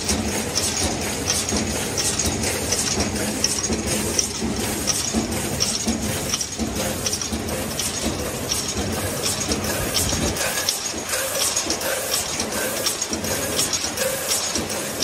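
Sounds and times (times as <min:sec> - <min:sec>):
conveyor clattering: 0:00.0 - 0:15.0
regular machine clicking: 0:00.0 - 0:15.0.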